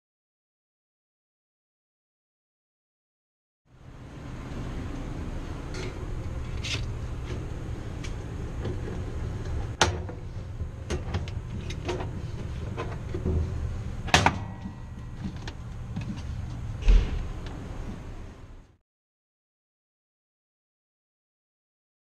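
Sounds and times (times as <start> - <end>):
refrigerator hum: 3.7 - 18.8.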